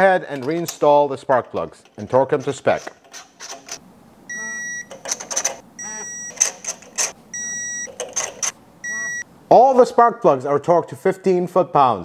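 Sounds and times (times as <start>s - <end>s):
torque wrench beeping: 4.3s - 9.2s.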